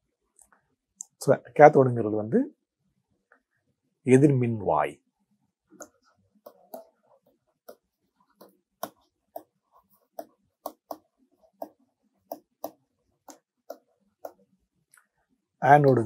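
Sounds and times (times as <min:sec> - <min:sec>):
stylus tapping on pen tablet: 0:05.7 - 0:15.1, 0:15.8 - 0:16.0.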